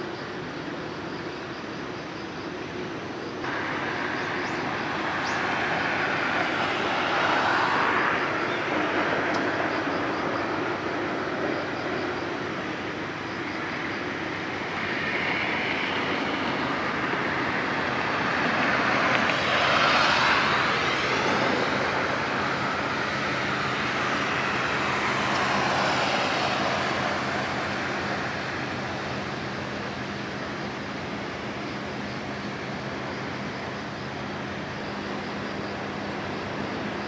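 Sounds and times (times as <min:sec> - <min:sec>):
road traffic: 0:00.0 - 0:37.0
vehicle passing close by: 0:03.5 - 0:12.1, 0:14.6 - 0:30.1.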